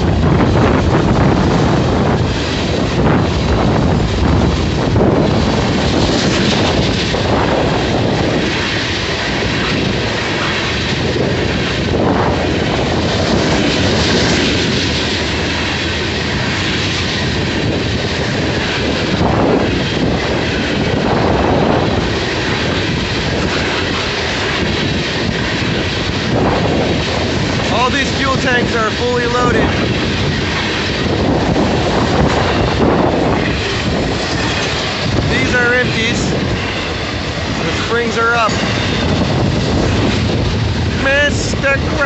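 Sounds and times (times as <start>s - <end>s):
freight train wheels on rails: 0.0s - 42.0s.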